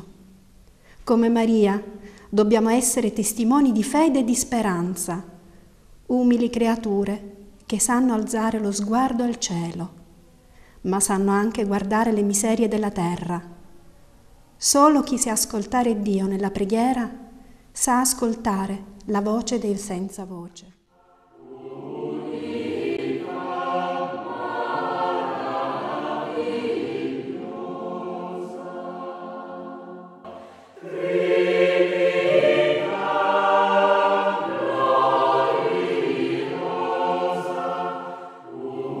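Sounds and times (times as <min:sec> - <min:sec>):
choir singing held notes: 0:21.0 - 0:39.0.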